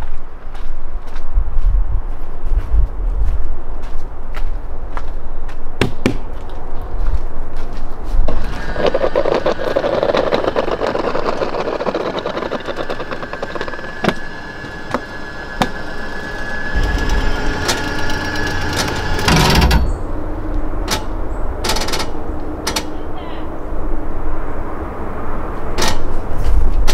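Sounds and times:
electric motor whining: 8.4s - 21.1s
slide-out clunk: 16.8s - 20.1s.

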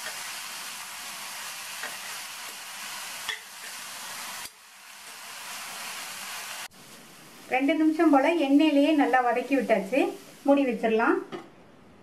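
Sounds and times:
cabbage sizzling in oil: 0.0s - 11.1s
spatula stirring in pan: 1.2s - 5.2s.

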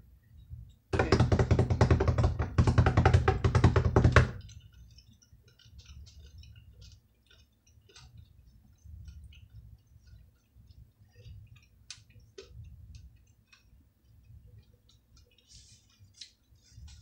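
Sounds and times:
chewing clicks: 4.4s - 16.5s.

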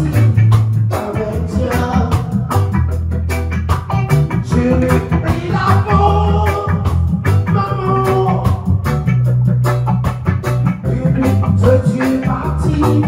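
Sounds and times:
person singing: 0.0s - 2.7s, 4.4s - 8.9s, 10.8s - 13.0s
bass line: 0.0s - 13.0s
drum kit beat: 0.0s - 13.0s
electric guitars: 0.0s - 13.0s
keyboard: 0.0s - 13.0s.

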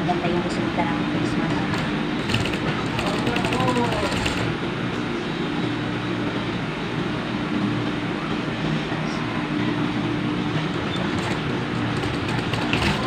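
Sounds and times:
sewing machine stitching: 1.7s - 4.5s, 10.9s - 13.0s.

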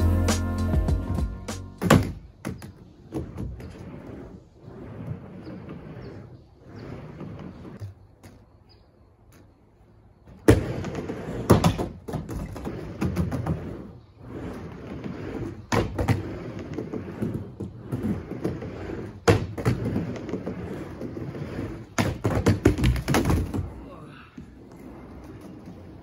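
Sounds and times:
skateboard wheels rumbling: 0.0s - 26.0s
skateboard clacking on ramp: 21.9s - 23.7s.

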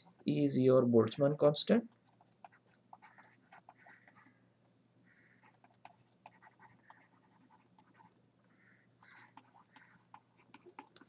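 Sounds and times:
stylus writing on tablet: 1.2s - 4.4s, 5.4s - 8.2s, 9.0s - 11.0s.

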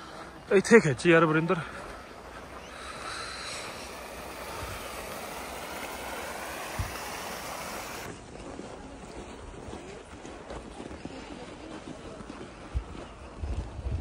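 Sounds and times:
creek running over rocks: 0.0s - 8.2s.

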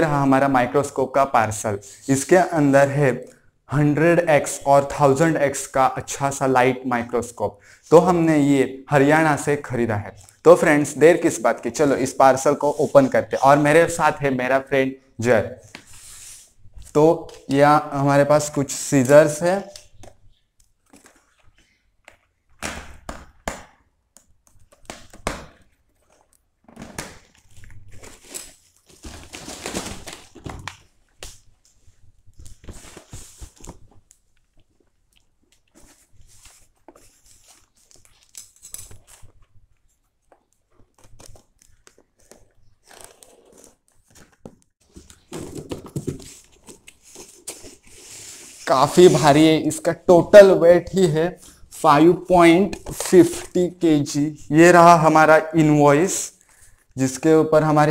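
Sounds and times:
cardboard rustling and crinkling: 25.6s - 49.2s.

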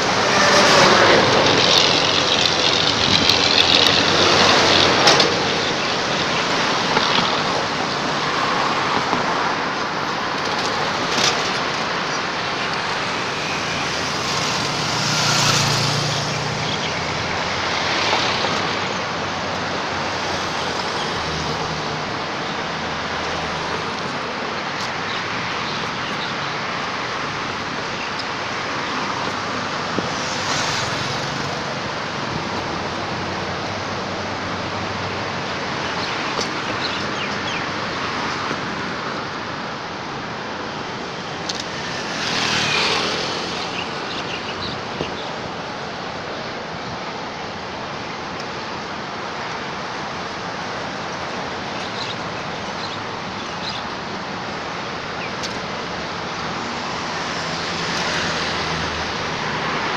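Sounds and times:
road traffic passing: 0.0s - 59.9s.

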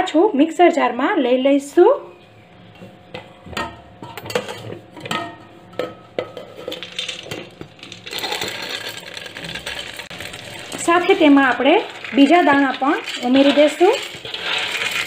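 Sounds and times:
steel bowls clinking: 3.1s - 15.0s.

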